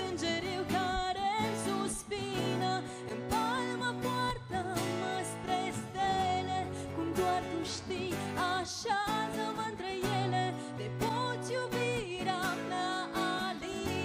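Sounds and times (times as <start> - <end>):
acoustic guitars strumming: 0.0 - 14.0
woman singing with vibrato: 0.0 - 14.0.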